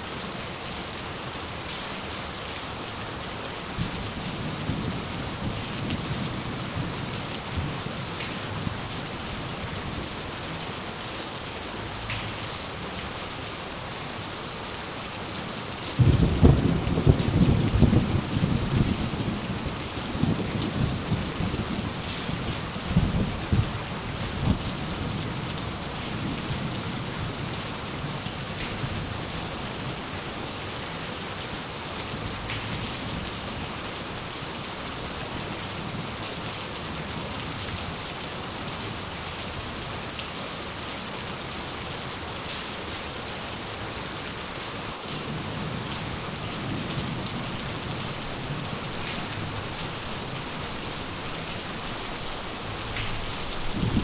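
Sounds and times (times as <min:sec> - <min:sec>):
steady rain falling: 0:00.0 - 0:54.0
thunder rumbling: 0:16.0 - 0:23.7, 0:53.6 - 0:54.0.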